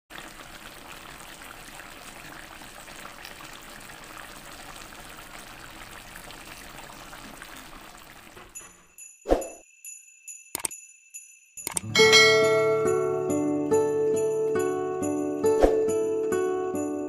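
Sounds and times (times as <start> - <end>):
stew simmering in a pan: 0.1 - 8.6.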